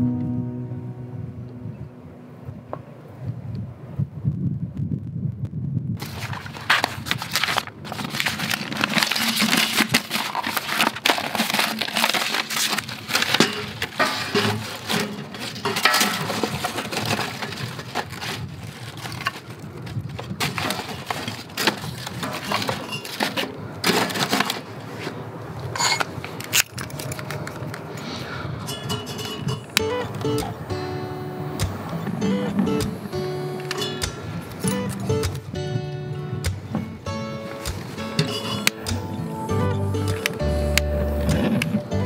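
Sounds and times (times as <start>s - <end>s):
wood shavings rustling: 6.0s - 25.2s
kindling sticks clacking on steel: 28.6s - 30.6s, 32.8s - 35.4s, 37.5s - 39.1s.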